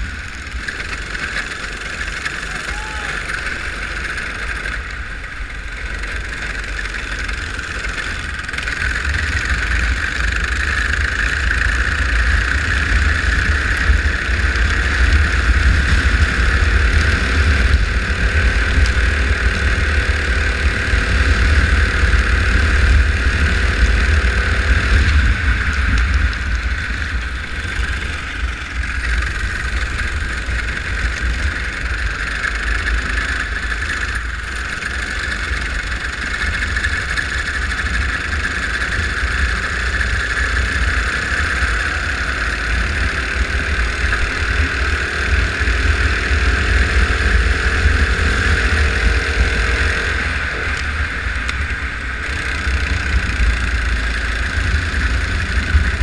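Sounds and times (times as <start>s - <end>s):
go-kart engine running: 0.0s - 56.0s
heavy low rumble: 0.0s - 56.0s.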